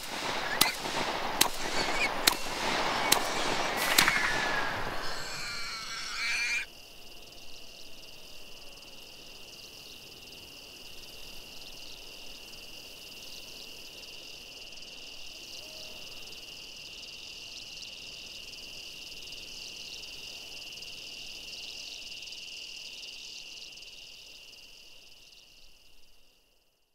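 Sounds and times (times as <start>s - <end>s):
chorus of trilling frogs or insects: 0.0s - 25.9s
brief pitched cry: 3.0s - 6.7s.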